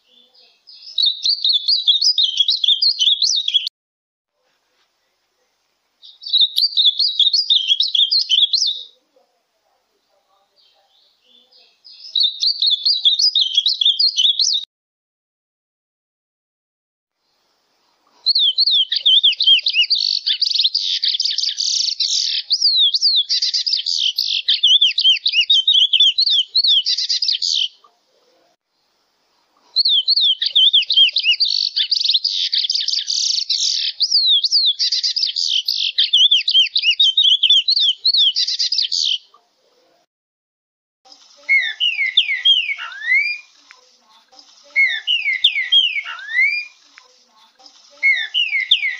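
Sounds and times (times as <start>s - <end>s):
finch twittering song: 0.0s - 3.7s, 6.0s - 9.0s, 10.5s - 14.7s, 18.2s - 27.8s, 29.7s - 39.4s, 41.1s - 48.9s.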